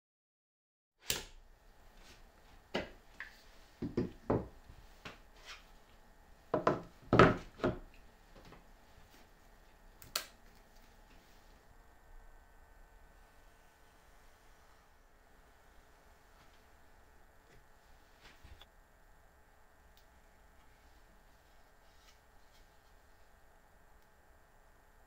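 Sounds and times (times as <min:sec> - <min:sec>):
wooden knocks and taps: 0:03.8 - 0:04.5, 0:06.6 - 0:07.8.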